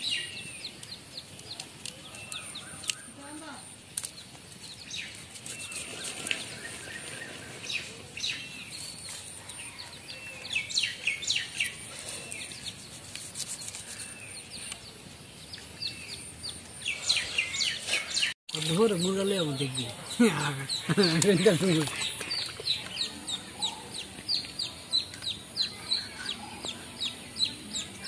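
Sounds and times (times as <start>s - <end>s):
small birds chirping: 0.0s - 28.0s
knife scaling a fish: 4.6s - 6.5s, 11.6s - 14.2s.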